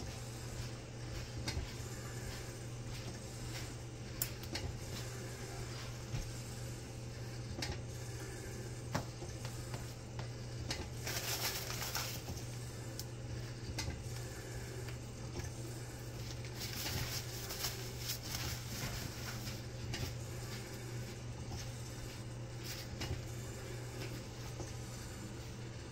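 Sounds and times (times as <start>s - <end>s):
low hum of lab equipment: 0.0s - 25.9s
paper tissue rustling: 11.0s - 12.4s, 16.2s - 20.8s.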